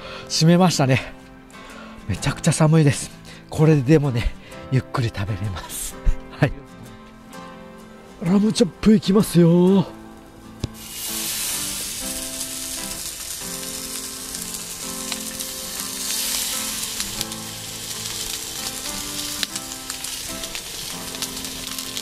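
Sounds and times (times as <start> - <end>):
background music: 0.0 - 22.0
meat sizzling in a frying pan: 10.7 - 22.0.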